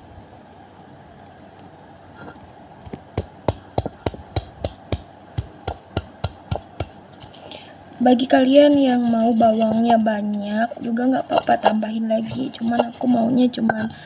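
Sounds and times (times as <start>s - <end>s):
stone pestle pounding mortar: 3.2s - 7.3s, 8.6s - 14.0s.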